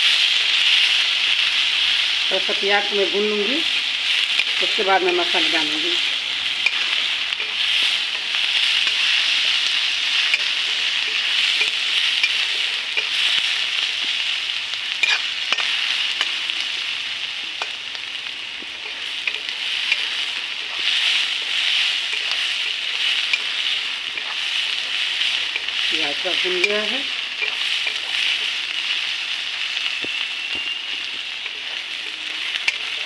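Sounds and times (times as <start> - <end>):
onion sizzling in hot oil: 0.0 - 33.0
metal spatula clicking on pan: 6.6 - 6.8, 10.2 - 13.2, 15.0 - 16.4, 22.1 - 23.6, 32.6 - 32.9.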